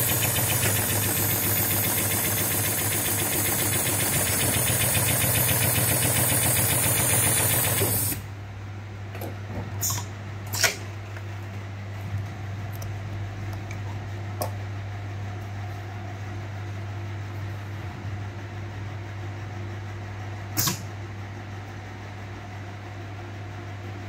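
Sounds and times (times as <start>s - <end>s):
low electrical hum: 8.2s - 24.0s.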